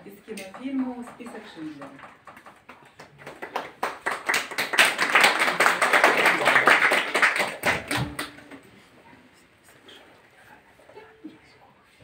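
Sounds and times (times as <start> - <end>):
small audience applauding: 0.3 - 8.8.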